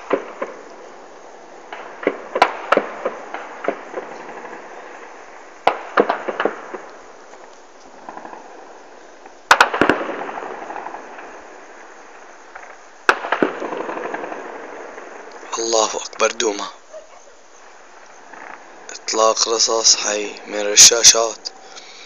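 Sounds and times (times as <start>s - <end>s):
gunfire echo: 0.0s - 0.9s, 1.6s - 7.1s, 9.5s - 15.4s.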